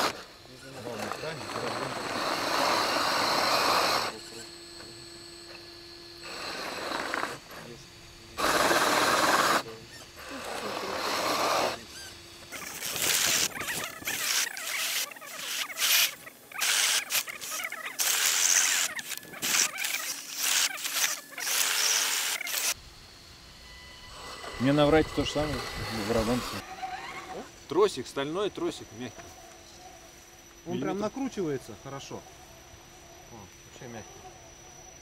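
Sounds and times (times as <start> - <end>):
rc truck motor and tyres grinding: 0.0 - 22.8, 23.6 - 27.6.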